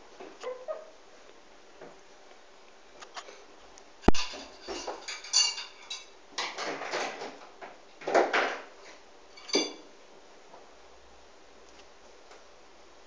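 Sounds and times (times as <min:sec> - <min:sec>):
rustling clattering handling noise: 0:04.1 - 0:09.8.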